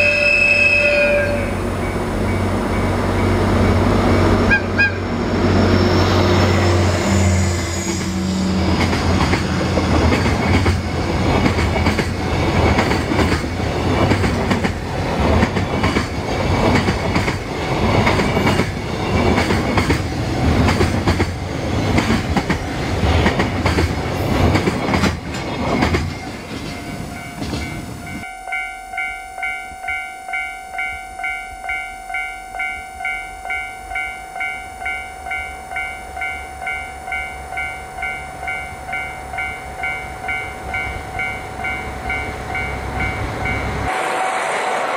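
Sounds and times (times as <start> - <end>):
freight train rumbling past: 0.0 - 44.9
train wheels clacking: 7.4 - 28.3
level crossing warning bell: 26.1 - 43.9.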